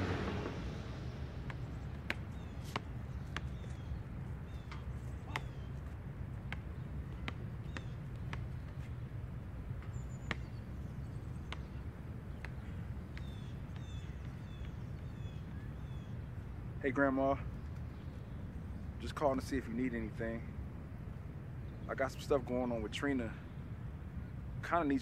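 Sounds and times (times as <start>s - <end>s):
steady low rumble: 0.0s - 22.2s
small birds chirping: 1.4s - 19.9s.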